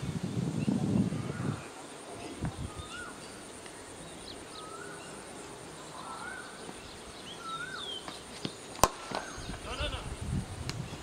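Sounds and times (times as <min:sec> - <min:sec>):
steady hiss: 0:00.0 - 0:11.0
bird whistling: 0:04.5 - 0:05.2, 0:07.3 - 0:08.1
cricket bat striking ball: 0:08.8 - 0:09.4.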